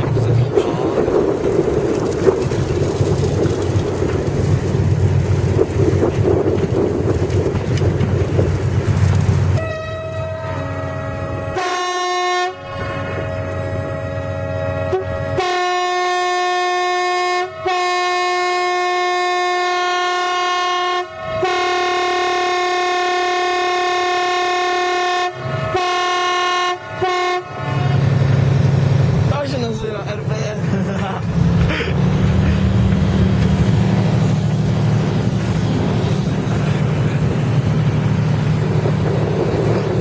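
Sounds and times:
diesel locomotives rumbling: 0:00.0 - 0:40.0
locomotive horn blasts: 0:09.6 - 0:28.5.

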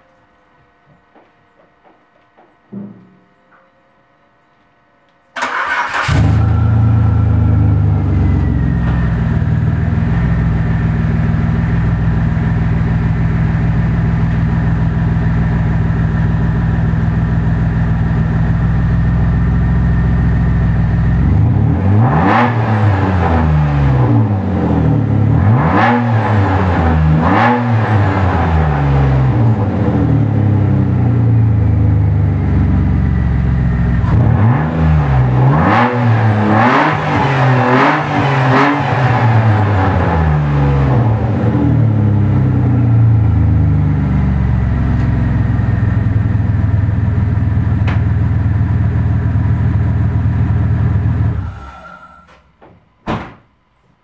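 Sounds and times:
engine revving in blips: 0:05.4 - 0:14.9, 0:18.0 - 0:48.2
car engine idling: 0:05.4 - 0:21.8, 0:28.6 - 0:34.4, 0:37.4 - 0:52.6.

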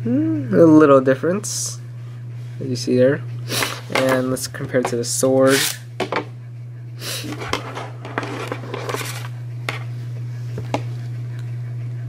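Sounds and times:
steady low hum: 0:00.0 - 0:12.0
plastic ripcords scraping and rustling: 0:07.2 - 0:09.8.

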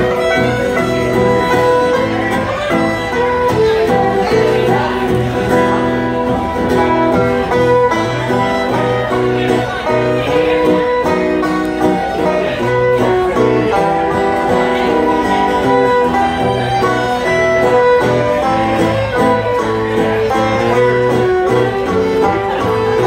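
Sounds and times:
banjo and acoustic guitar: 0:00.0 - 0:23.0
fiddle melody: 0:00.0 - 0:23.0.

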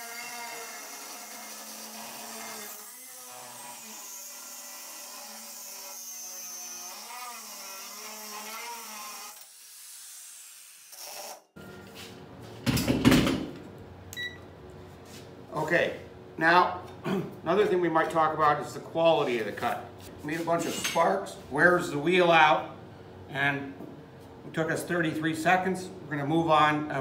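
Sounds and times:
angle grinder cutting metal: 0:00.0 - 0:11.6.

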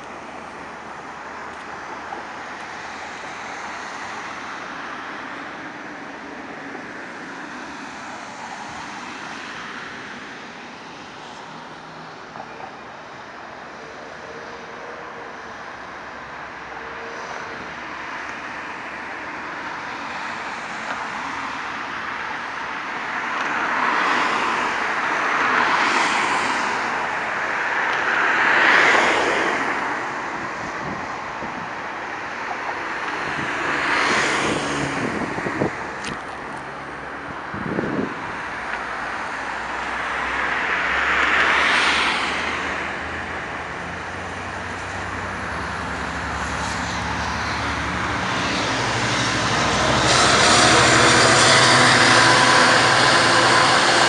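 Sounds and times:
road traffic passing: 0:00.0 - 0:54.0
train rumble: 0:43.7 - 0:54.0.

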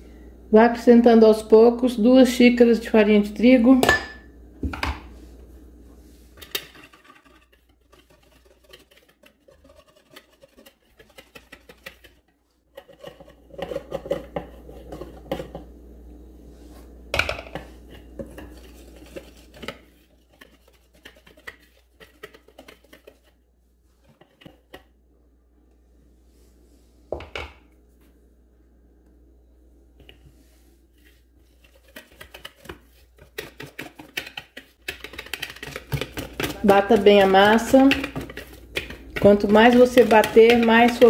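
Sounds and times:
whisk stirring batter in plastic bowl: 0:06.1 - 0:15.7, 0:17.4 - 0:25.0, 0:30.0 - 0:41.0
whisk tapping bowl: 0:06.5 - 0:15.7, 0:17.2 - 0:23.4, 0:31.4 - 0:41.0.

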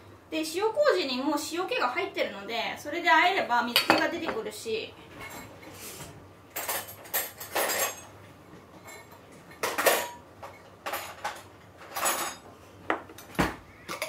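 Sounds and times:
cutlery and dishes clinking: 0:06.5 - 0:08.1, 0:08.8 - 0:12.4.

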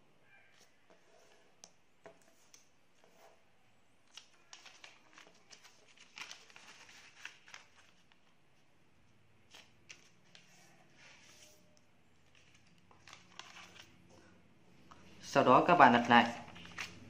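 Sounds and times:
paper rustling and crackling: 0:04.1 - 0:08.4, 0:09.5 - 0:11.6, 0:12.2 - 0:14.0, 0:16.2 - 0:17.0.

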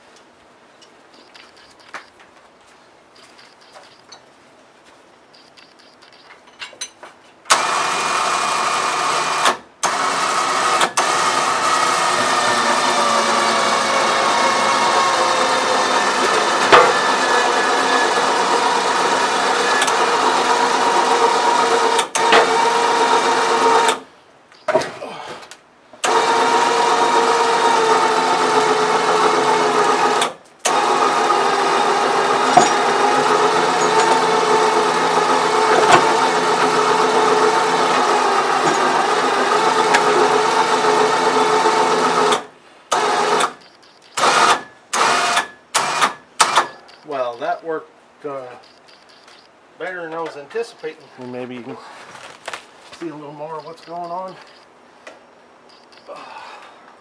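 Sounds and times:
electric winch motor running: 0:07.5 - 0:24.0, 0:26.0 - 0:43.6, 0:44.2 - 0:47.1.

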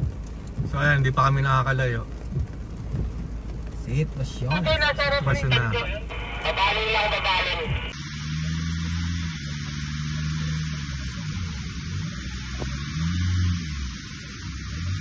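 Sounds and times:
truck engine droning under load: 0:04.9 - 0:15.0.

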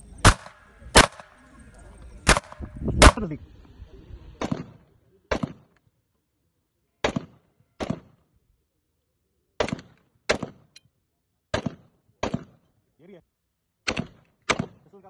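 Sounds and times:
rifle shots with echo: 0:00.2 - 0:01.5, 0:02.2 - 0:03.4, 0:04.4 - 0:05.8, 0:07.0 - 0:08.2, 0:09.6 - 0:10.7, 0:11.5 - 0:12.6, 0:13.9 - 0:14.9.

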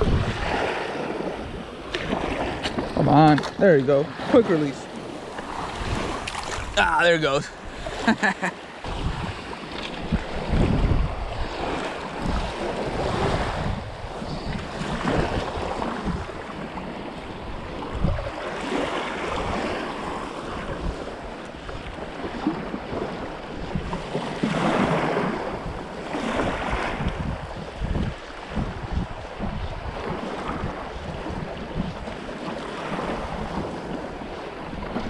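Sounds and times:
wind buffeting microphone: 0:00.0 - 0:08.1, 0:08.8 - 0:35.0
small surf washing onto beach: 0:00.0 - 0:35.0.

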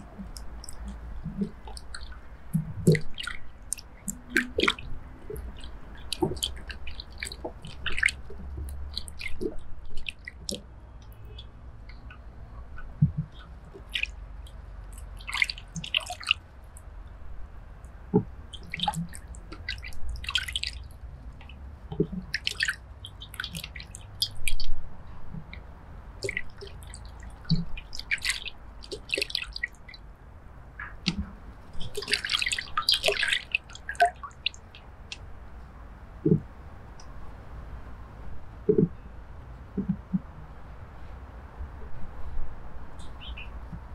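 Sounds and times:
water dripping and splashing: 0:00.0 - 0:17.2, 0:17.8 - 0:30.0, 0:30.8 - 0:35.3.

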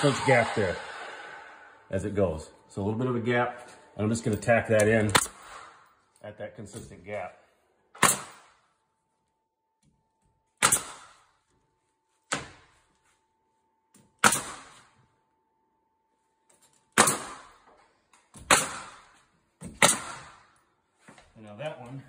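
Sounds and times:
nail gun firing: 0:05.1 - 0:05.8, 0:08.0 - 0:08.6, 0:10.6 - 0:11.3, 0:14.2 - 0:14.9, 0:17.0 - 0:17.7, 0:18.4 - 0:20.6.

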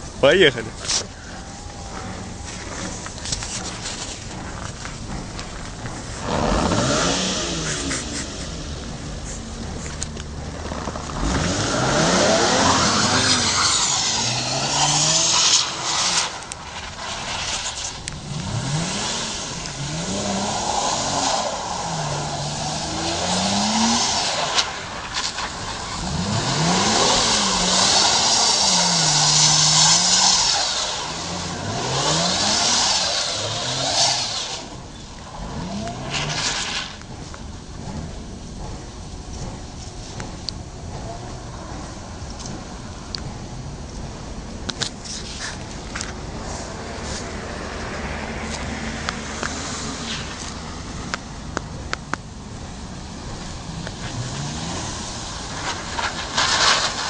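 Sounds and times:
car engine revving: 0:00.0 - 0:57.0
tyres squealing: 0:00.5 - 0:37.0.

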